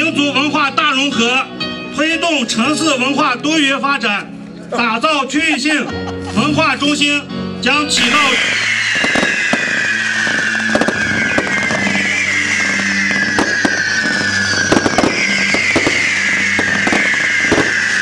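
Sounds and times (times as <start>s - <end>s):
firework cracks and pops: 8.0s - 18.0s
fireworks whistling: 8.0s - 18.0s.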